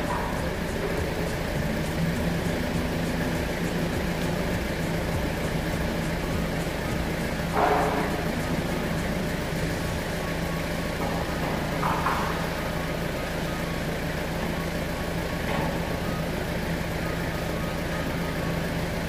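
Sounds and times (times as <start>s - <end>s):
factory machinery humming: 0.0s - 19.0s.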